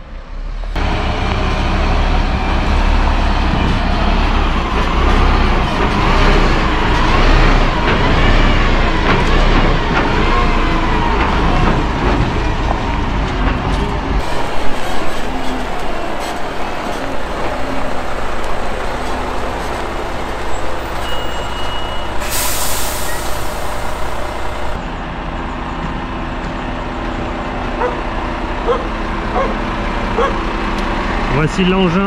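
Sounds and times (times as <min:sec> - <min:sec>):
diesel engine running: 0:00.8 - 0:32.0
air brakes hissing: 0:14.2 - 0:24.8.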